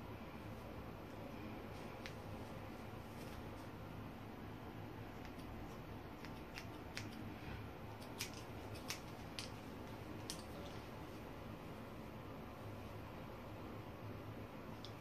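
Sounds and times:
scissors snipping hair: 0:05.1 - 0:07.3, 0:07.9 - 0:10.8.

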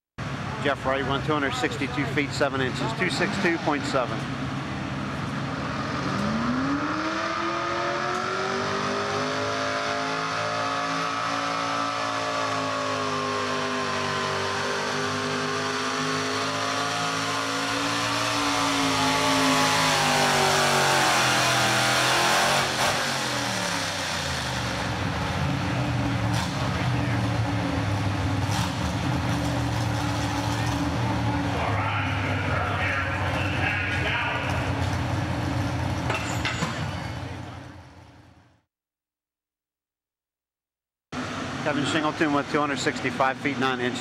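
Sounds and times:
pulling truck engine at full throttle: 0:00.2 - 0:38.1, 0:41.2 - 0:44.0.

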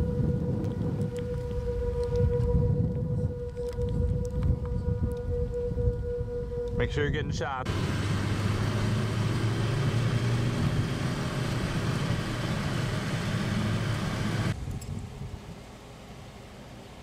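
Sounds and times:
car engine hum: 0:07.6 - 0:17.0
road and tyre noise: 0:07.6 - 0:17.0.

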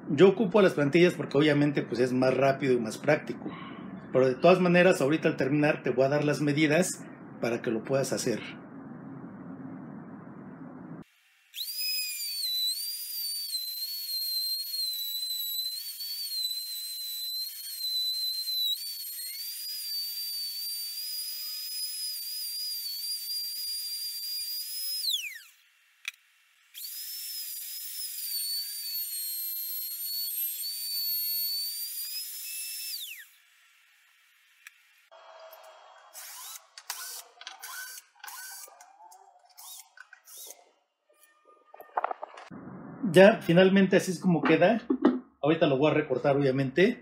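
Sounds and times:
router motor whining: 0:11.6 - 0:40.7.

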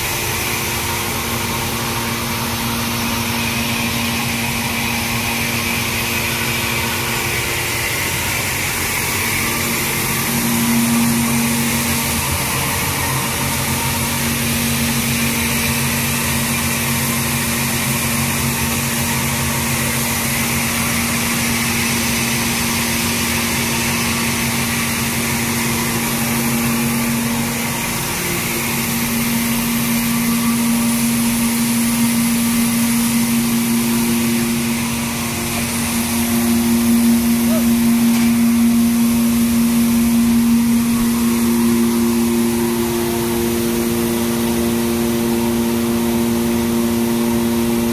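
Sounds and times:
grain machine humming: 0:00.0 - 0:47.9.

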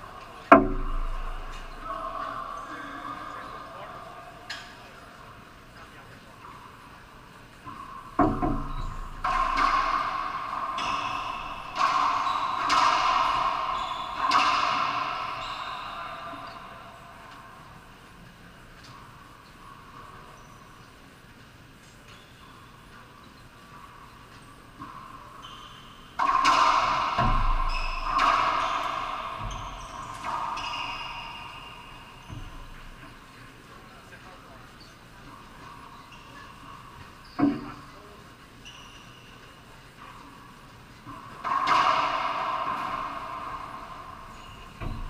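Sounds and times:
racquetball hits echoing: 0:00.0 - 0:03.9, 0:07.7 - 0:17.9, 0:24.8 - 0:33.2, 0:41.1 - 0:45.0.

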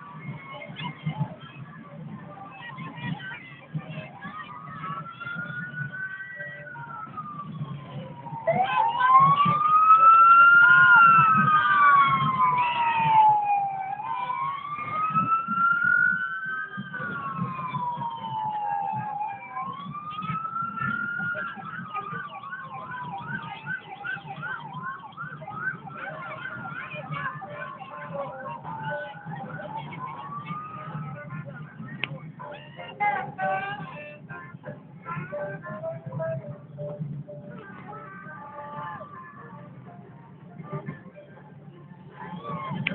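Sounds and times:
siren wailing: 0:04.1 - 0:31.2.

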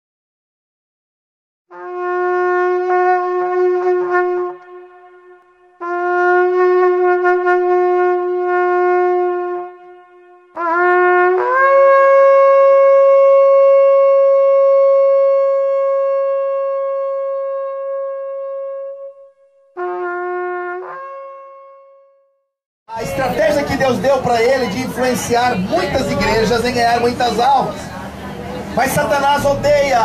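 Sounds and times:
ram's horn blasts: 0:01.7 - 0:12.8.

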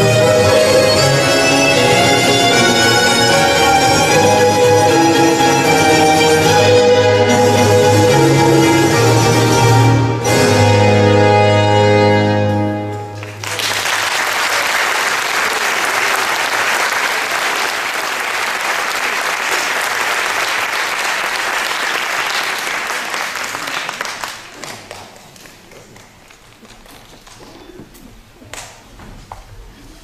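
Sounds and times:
audience applauding: 0:12.9 - 0:27.4.

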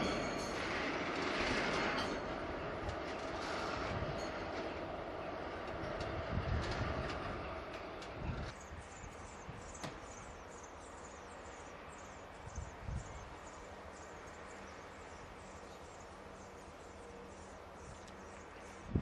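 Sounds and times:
diesel locomotive idling: 0:00.0 - 0:12.5.

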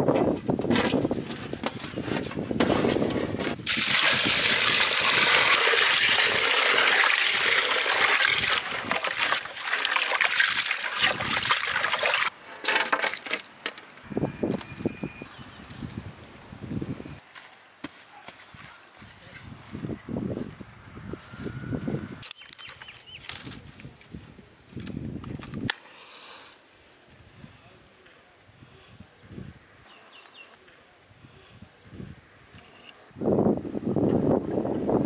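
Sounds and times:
water pouring and splashing in pot: 0:03.6 - 0:12.3
small water splashes: 0:03.7 - 0:12.3.

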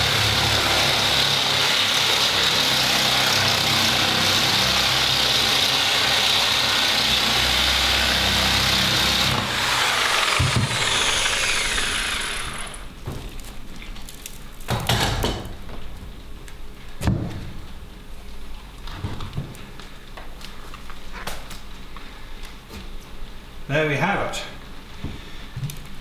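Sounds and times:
angle grinder grinding metal: 0:00.0 - 0:13.0.

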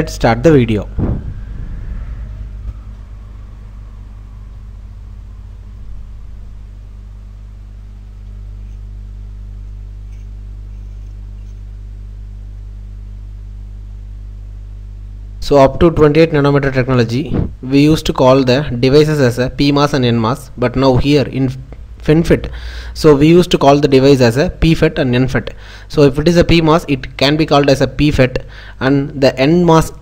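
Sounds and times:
electrical hum with buzzing: 0:00.0 - 0:30.0
faint tone: 0:00.8 - 0:11.7.

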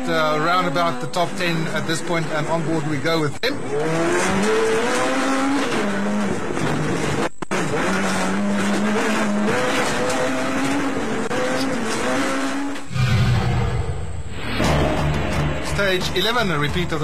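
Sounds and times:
rally car engine revving: 0:00.0 - 0:13.3.

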